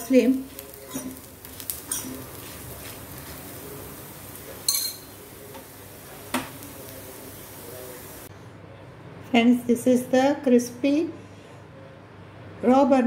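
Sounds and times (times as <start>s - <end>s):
metal spoon scraping a pan: 0.5s - 3.5s.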